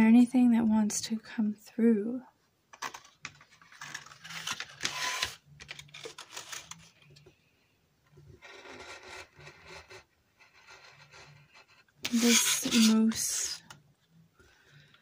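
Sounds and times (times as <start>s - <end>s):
tool scratching paperboard: 8.4s - 13.6s.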